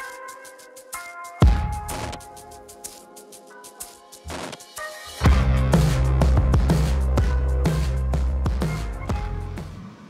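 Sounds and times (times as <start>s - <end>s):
fast hi-hat ticks: 0.0s - 5.9s
synth chords: 0.0s - 10.0s
heavy bass hit dropping in pitch: 5.3s - 9.8s.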